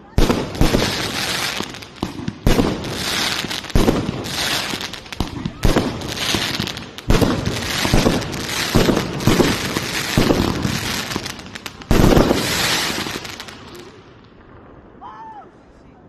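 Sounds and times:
fireworks bangs and crackle: 0:00.0 - 0:15.0.

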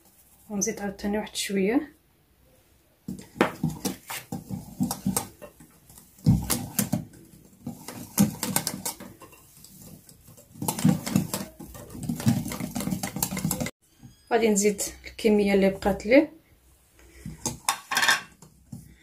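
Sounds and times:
whisk scraping glass bowl: 0:03.6 - 0:13.8.

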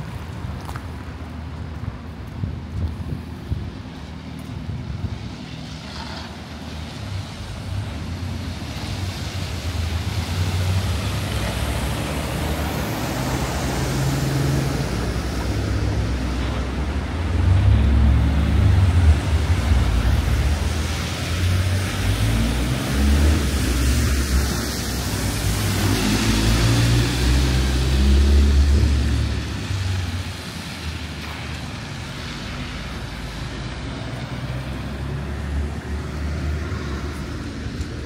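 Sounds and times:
outdoor street ambience: 0:00.0 - 0:38.0
road traffic passing: 0:00.0 - 0:38.0
wind buffeting microphone: 0:01.7 - 0:05.6.

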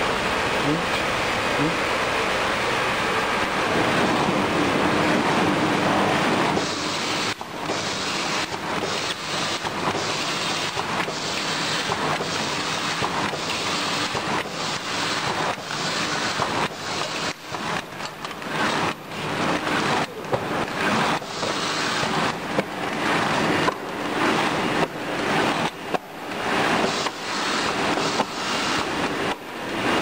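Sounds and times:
packaging machine clatter: 0:06.6 - 0:29.2.

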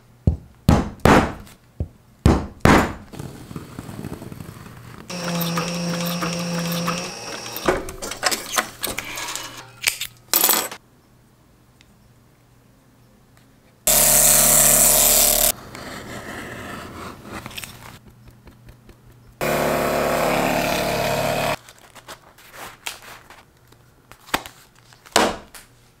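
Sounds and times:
power tool running: 0:05.1 - 0:07.7, 0:13.9 - 0:15.5, 0:19.4 - 0:21.6
sewing machine stitching: 0:05.1 - 0:09.4.

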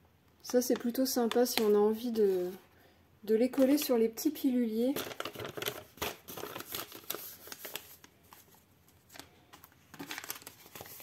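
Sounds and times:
paper rustling: 0:00.6 - 0:02.6, 0:05.0 - 0:11.0.

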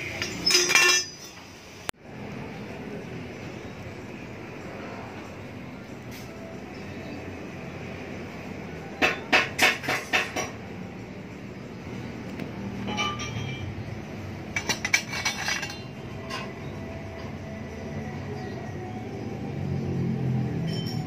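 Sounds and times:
metal pipes clinking: 0:00.0 - 0:01.5, 0:12.8 - 0:13.9, 0:14.5 - 0:16.7.

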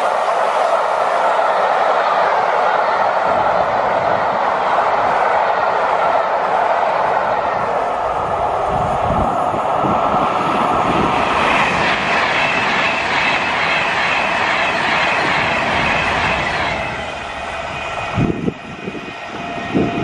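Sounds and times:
electric train passing at speed: 0:00.0 - 0:20.0
train coaches running on curve: 0:00.0 - 0:20.0.

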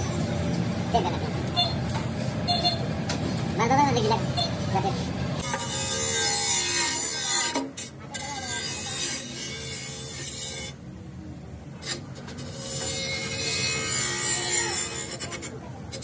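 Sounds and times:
rough scraping and rasping: 0:05.4 - 0:10.8, 0:11.8 - 0:16.0.

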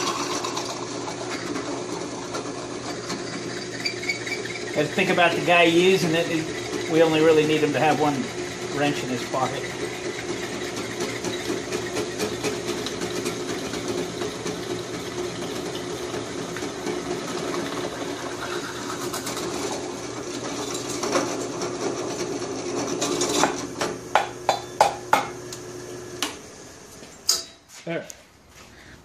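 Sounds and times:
drill press drilling metal: 0:00.0 - 0:25.4.

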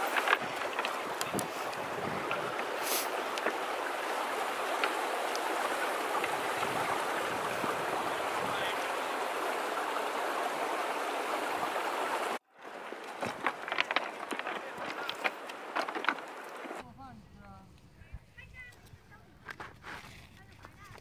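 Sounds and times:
running water rushing: 0:00.0 - 0:16.8.

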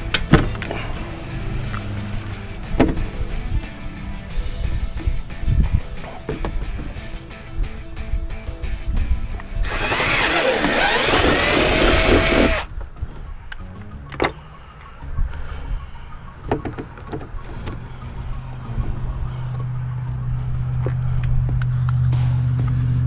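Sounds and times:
cordless drill whining: 0:09.6 - 0:12.7
steady low hum: 0:17.6 - 0:23.0.

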